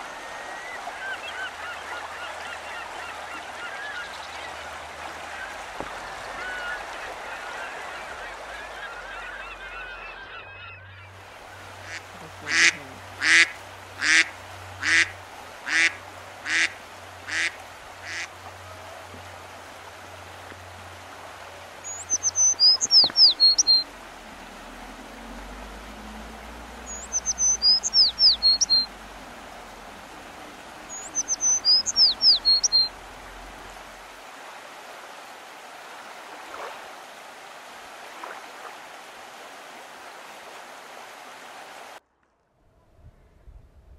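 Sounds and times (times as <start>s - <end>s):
waterfowl honking quacks: 0.0s - 18.5s, 21.8s - 24.0s, 26.7s - 33.9s
river water rushing: 0.0s - 42.0s
songbird whistled phrase: 21.8s - 23.8s, 26.9s - 28.9s, 30.9s - 32.9s.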